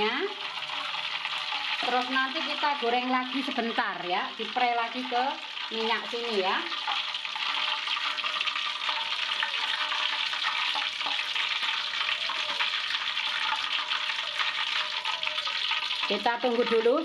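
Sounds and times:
oil sizzling in a wok: 0:00.0 - 0:17.0.

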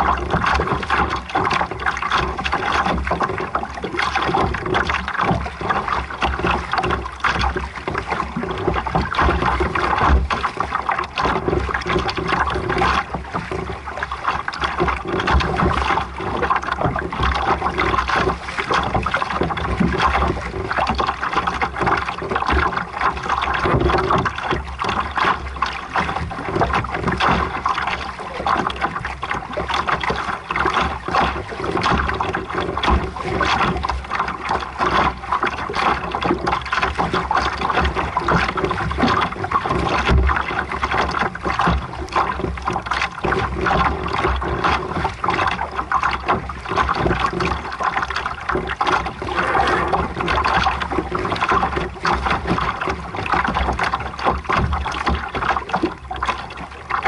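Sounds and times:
water splashing against a hull: 0:00.0 - 0:57.0
low rumble: 0:49.1 - 0:50.6.

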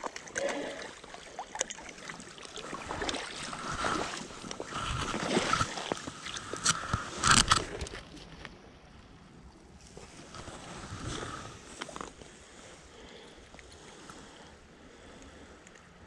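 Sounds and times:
fish splashing and flopping: 0:00.0 - 0:08.5.

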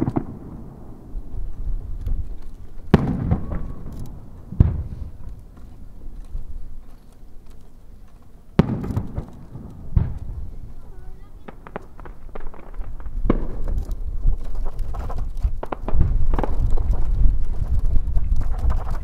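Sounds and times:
firework shells booming: 0:00.0 - 0:06.1, 0:08.5 - 0:19.0
echoing rumble: 0:02.8 - 0:06.1, 0:08.6 - 0:13.6.

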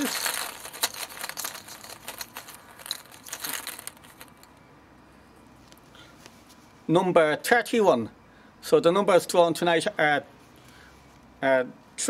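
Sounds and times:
hand rummaging in crinkling bag: 0:00.0 - 0:04.5
balls clicking: 0:00.0 - 0:04.6.

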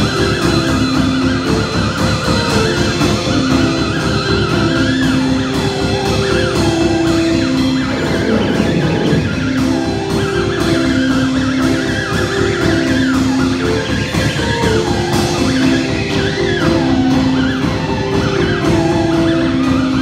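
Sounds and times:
drum kit beat: 0:00.0 - 0:19.8
garage rock band playing: 0:00.0 - 0:20.0
sliding high lead guitar: 0:03.9 - 0:18.8.

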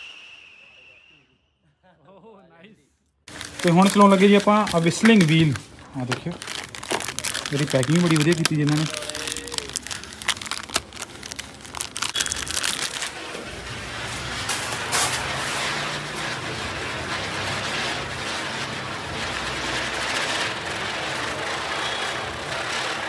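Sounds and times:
plastic packaging crinkling: 0:03.3 - 0:15.5.

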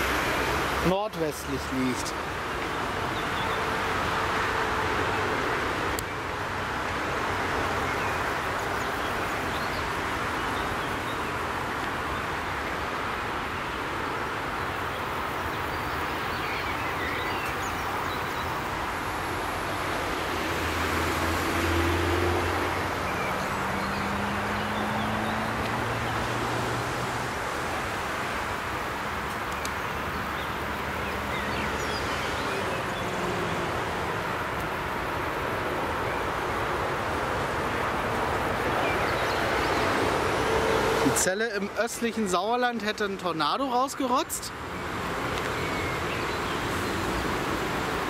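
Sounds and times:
motorway traffic roar: 0:00.0 - 0:48.0
passing vehicle engine hum: 0:18.6 - 0:29.3, 0:29.9 - 0:41.3.

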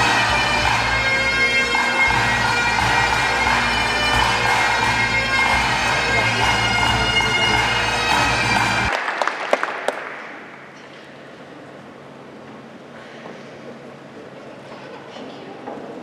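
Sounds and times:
bagpipes playing: 0:00.0 - 0:08.9.

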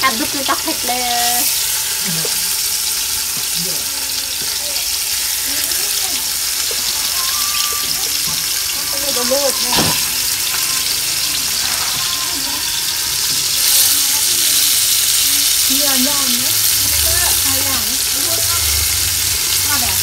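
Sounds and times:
meat sizzling in hot oil: 0:00.0 - 0:20.0.

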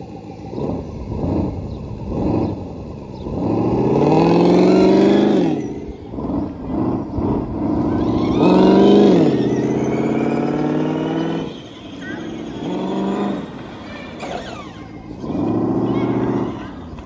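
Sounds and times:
simulated engine revving: 0:00.0 - 0:17.0.

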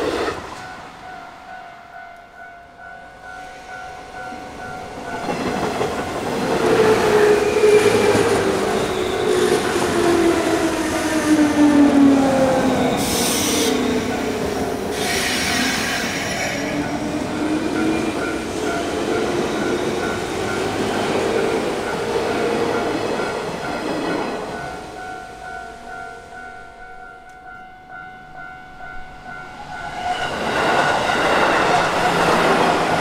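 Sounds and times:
electric train passing: 0:00.0 - 0:33.0.

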